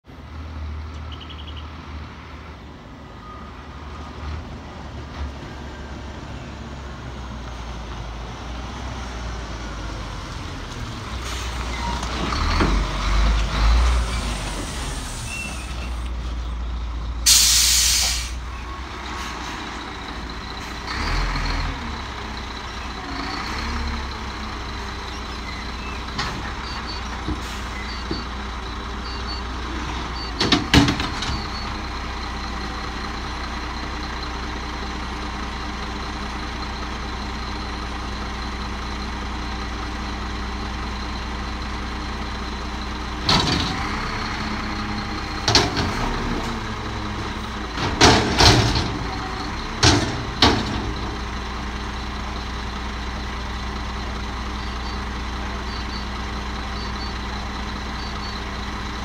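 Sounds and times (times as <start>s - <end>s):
garbage truck diesel engine: 0.0s - 59.0s
air brakes hissing: 11.2s - 12.0s, 13.9s - 16.1s, 17.2s - 18.5s, 27.3s - 28.0s.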